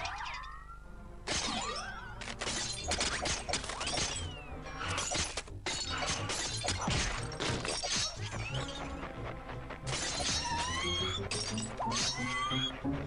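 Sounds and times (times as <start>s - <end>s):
cartoon background music: 0.0s - 13.0s.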